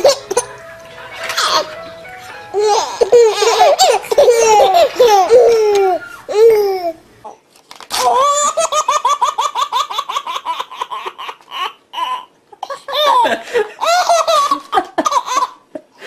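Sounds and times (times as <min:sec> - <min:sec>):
babies laughing and cooing: 0:02.5 - 0:07.0, 0:08.0 - 0:15.9.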